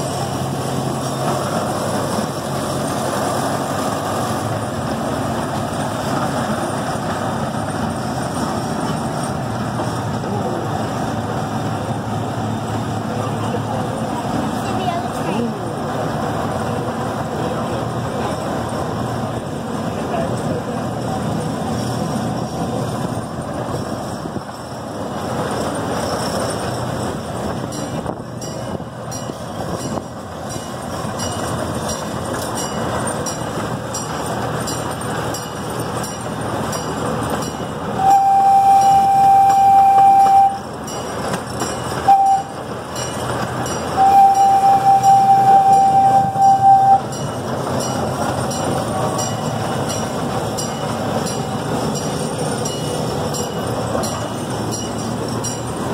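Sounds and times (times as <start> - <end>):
miniature train running on track: 0.0 - 55.9
train horn blasts: 38.0 - 40.6, 42.0 - 42.6, 44.0 - 47.2.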